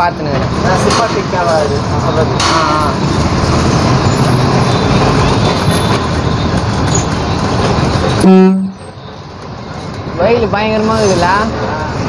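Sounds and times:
road and traffic noise: 0.0 - 12.0
vehicle horn honk: 8.2 - 8.9.

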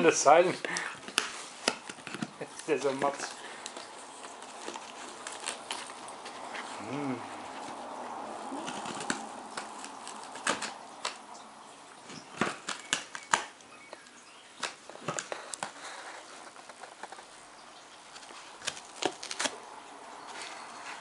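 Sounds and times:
dog scratching at cardboard box: 8.5 - 11.2.

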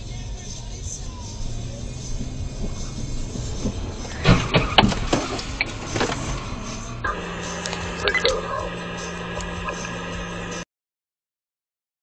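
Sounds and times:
car running hum: 0.0 - 10.6
car crash impact: 1.1 - 7.0.

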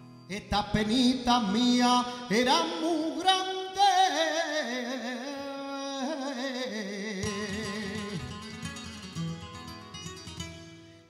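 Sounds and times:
flamenco guitar: 0.0 - 3.8, 7.2 - 11.0.

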